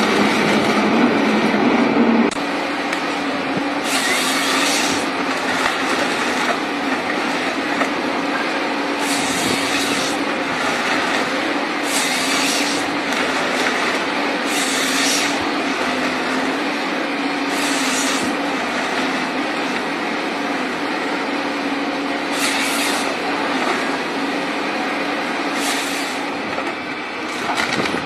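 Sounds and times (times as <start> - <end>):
engine and hydraulics running: 0.0 - 28.0
chainsaw cutting through log: 3.6 - 19.8, 22.2 - 23.3.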